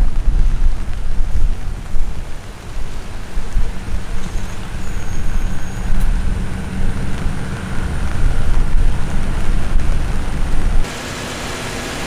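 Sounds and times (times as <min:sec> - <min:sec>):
wind buffeting microphone: 0:00.0 - 0:10.9.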